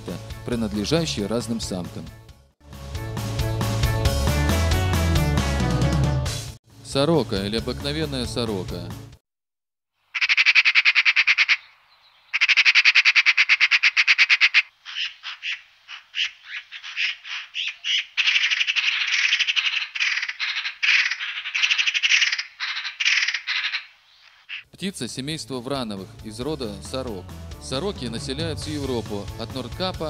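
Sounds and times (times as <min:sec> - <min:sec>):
magpie chattering rattles: 0:10.2 - 0:11.7, 0:12.3 - 0:24.6.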